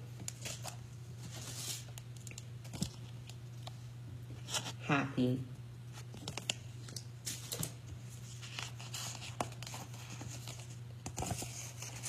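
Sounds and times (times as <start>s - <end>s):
steady low hum: 0.0s - 12.0s
picture cards rustling: 0.2s - 3.7s, 6.0s - 12.0s.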